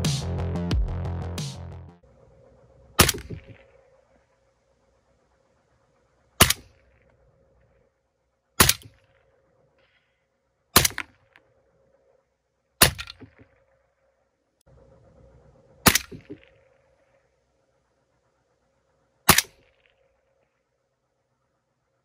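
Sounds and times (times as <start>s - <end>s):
suppressed rifle shots: 3.0s - 3.9s, 6.4s - 7.0s, 8.6s - 9.2s, 10.8s - 11.4s, 12.8s - 13.6s, 15.8s - 16.7s, 19.3s - 20.0s.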